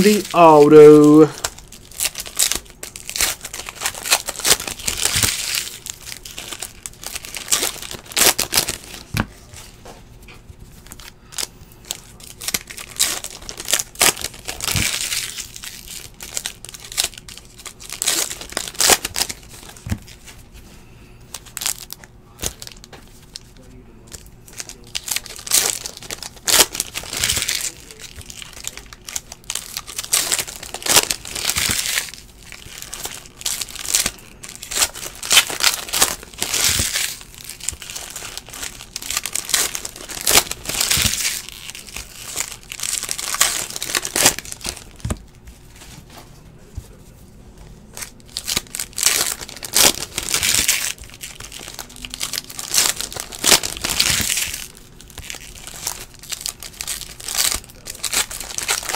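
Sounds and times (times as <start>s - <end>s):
foil wrappers crinkling and tearing: 0.0s - 10.0s, 10.6s - 20.6s, 21.2s - 46.9s, 47.9s - 58.9s
cards being flicked and shuffled: 0.0s - 20.4s.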